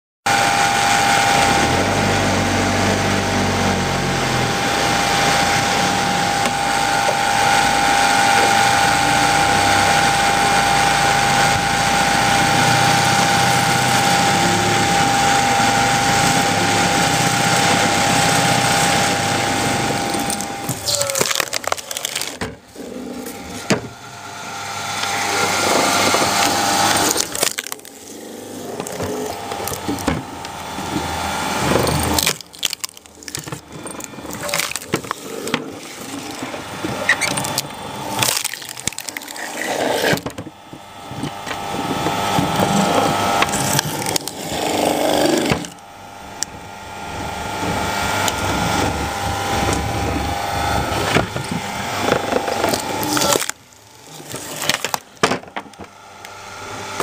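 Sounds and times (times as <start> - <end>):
electric motor whine: 0.3 - 57.0
wood crunching and splintering: 0.4 - 57.0
wood cracking and knocking: 16.9 - 22.7, 23.3 - 24.0, 25.5 - 45.8, 48.2 - 56.0.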